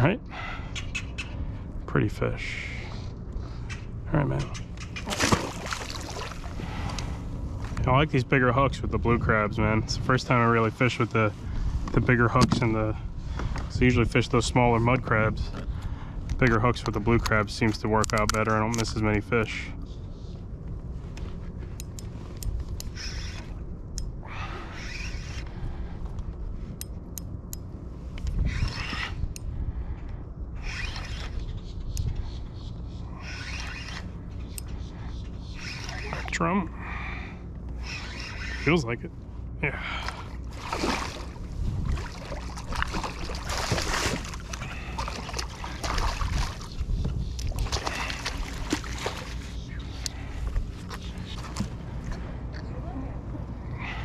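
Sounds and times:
steady low rumble: 0.0s - 54.0s
fish splashing at water surface: 5.0s - 6.5s, 40.5s - 46.7s
fishing reel gears clicking: 33.2s - 34.8s.

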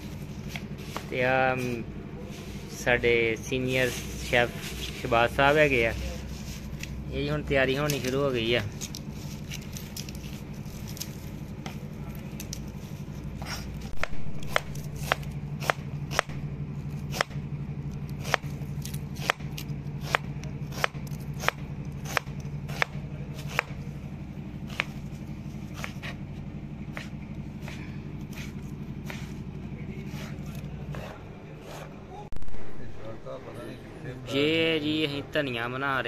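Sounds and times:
steady low hum: 0.0s - 36.0s
knife chopping on cutting board: 13.4s - 16.4s, 17.0s - 17.4s, 18.2s - 18.5s, 19.2s - 23.8s, 24.7s - 25.0s, 25.7s - 26.2s, 26.9s - 32.0s.

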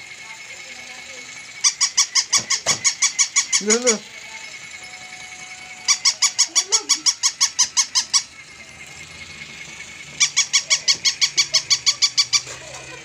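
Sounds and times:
faint high whine: 0.0s - 11.4s
toy dog electronic yaps: 1.6s - 4.3s, 5.7s - 9.0s, 10.0s - 13.0s.

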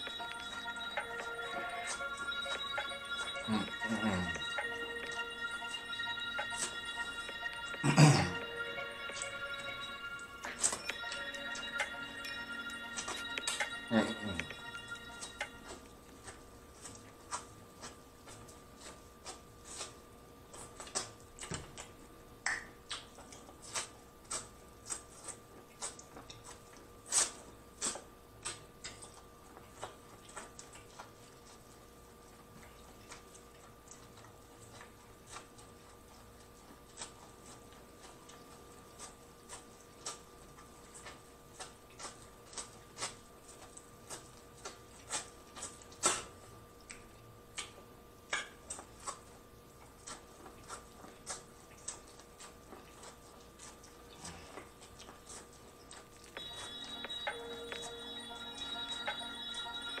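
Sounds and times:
faint steady hum: 0.0s - 60.0s
biting and chewing corn: 13.9s - 57.3s.

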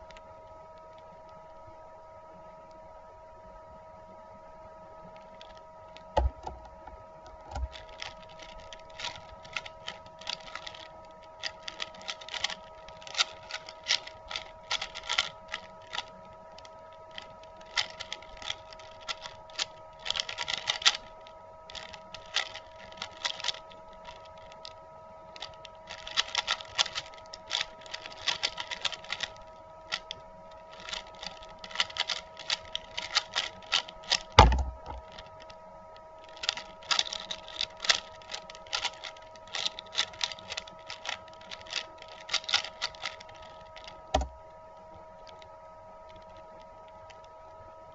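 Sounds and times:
dull thump: 6.2s - 7.8s, 34.4s - 35.1s, 44.1s - 44.4s
plastic puzzle cube clicking: 7.5s - 16.1s, 17.1s - 21.1s, 21.7s - 24.6s, 25.9s - 35.3s, 36.3s - 44.3s.

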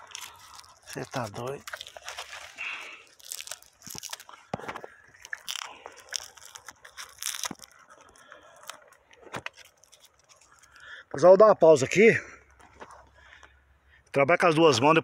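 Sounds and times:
branch crunching and tearing: 0.0s - 11.0s.

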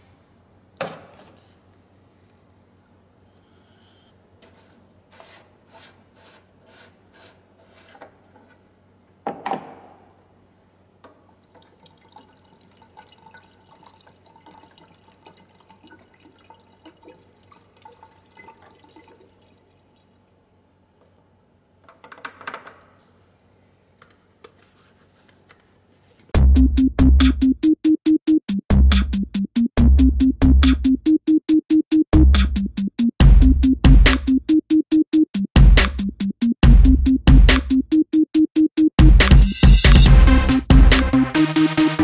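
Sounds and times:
liquid glugging and trickling: 11.3s - 20.3s.

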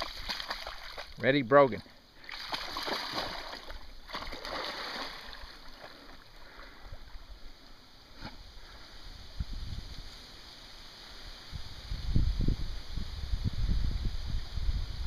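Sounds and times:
dog wading through water splashing: 0.0s - 1.2s, 2.2s - 6.4s
water lapping: 0.0s - 1.2s, 1.8s - 7.3s.

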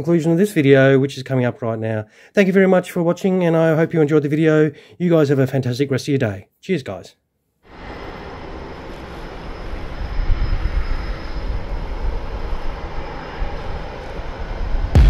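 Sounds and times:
jet engine roar with whine: 7.7s - 15.0s.

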